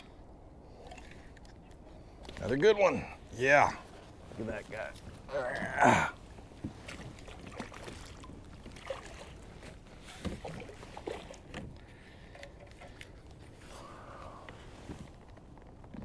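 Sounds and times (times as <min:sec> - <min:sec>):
water splashing: 0:02.3 - 0:14.0.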